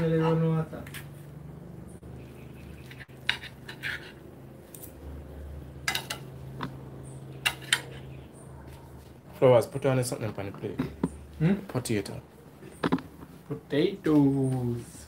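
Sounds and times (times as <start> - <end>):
low motor hum: 0.0 - 3.3, 4.2 - 9.4
knife and fork scraping plate: 2.7 - 5.0, 7.4 - 8.1.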